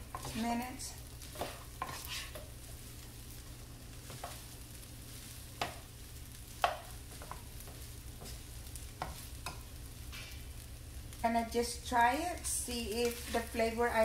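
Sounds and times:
utensils tapping and scraping pan: 0:00.0 - 0:02.6, 0:04.0 - 0:04.5, 0:05.6 - 0:05.9, 0:06.6 - 0:10.4, 0:12.4 - 0:13.8
fried rice sizzling in skillet: 0:00.0 - 0:14.0.

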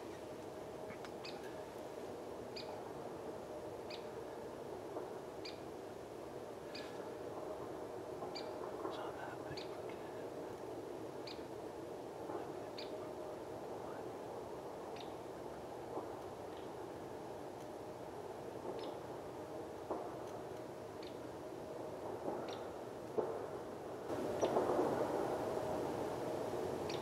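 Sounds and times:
steady low hiss: 0:00.0 - 0:27.0
small bird calling: 0:00.9 - 0:01.6, 0:14.9 - 0:15.2.

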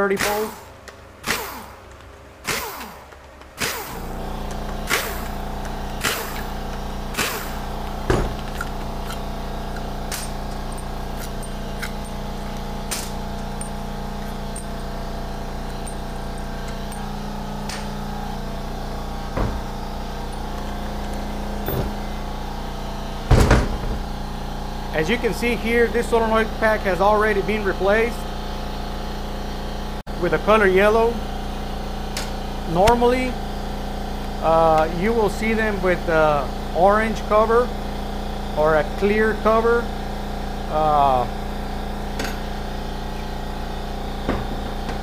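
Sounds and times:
air compressor humming: 0:00.0 - 0:45.0
tools and metal parts clicking: 0:07.2 - 0:18.0.

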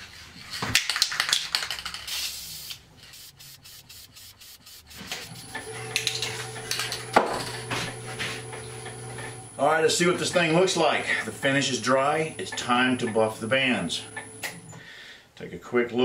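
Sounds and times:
wood lathe humming: 0:04.9 - 0:14.8.

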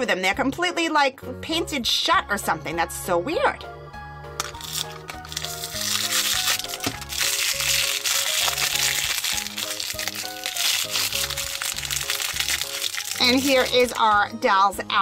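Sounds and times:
plastic wrapping crinkling: 0:04.4 - 0:14.0.

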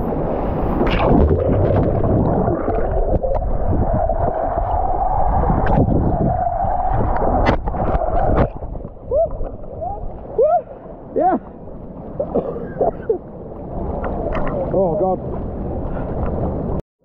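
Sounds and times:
underwater gurgling of moving water: 0:00.0 - 0:10.4.

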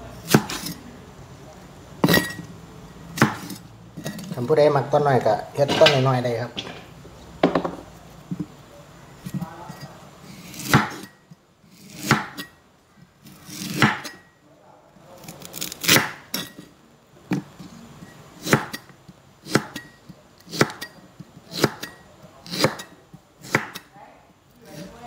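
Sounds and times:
cleaver chopping on wooden block: 0:10.6 - 0:11.0, 0:12.0 - 0:12.4, 0:13.8 - 0:14.1, 0:19.5 - 0:19.8, 0:20.5 - 0:20.9, 0:21.5 - 0:22.9, 0:23.5 - 0:23.8.

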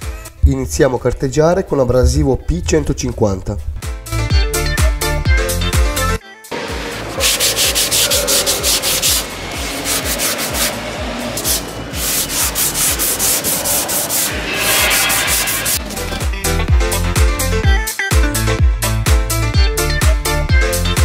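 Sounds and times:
hand sanding rasping strokes: 0:06.8 - 0:15.8.

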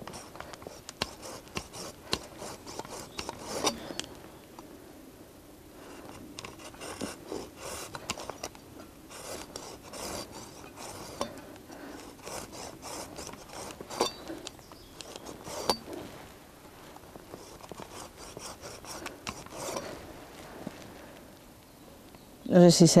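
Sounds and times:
hand saw cutting wet wood: 0:00.0 - 0:03.9, 0:12.0 - 0:14.2.

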